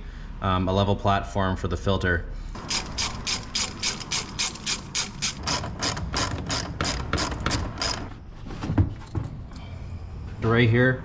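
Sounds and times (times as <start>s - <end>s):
ratchet clicking: 2.6s - 8.2s.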